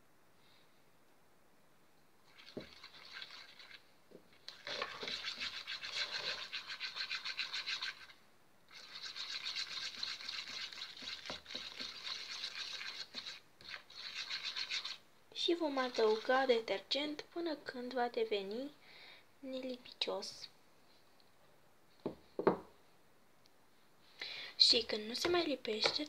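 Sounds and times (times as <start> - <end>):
plastic stick stirring slime: 2.3 - 16.6.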